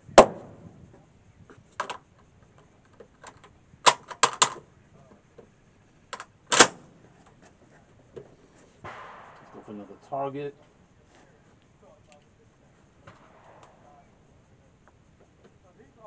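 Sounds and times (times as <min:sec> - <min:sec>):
metallic clicks of rifle handling: 0:02.9 - 0:04.6, 0:06.1 - 0:06.8
rifle shot: 0:06.5 - 0:07.0, 0:08.8 - 0:10.6, 0:13.0 - 0:14.1.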